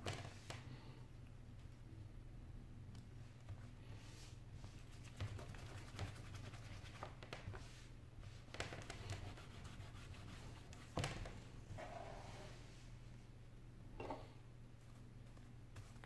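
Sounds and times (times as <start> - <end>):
cloth rubbing on glass screen: 4.0 - 12.9.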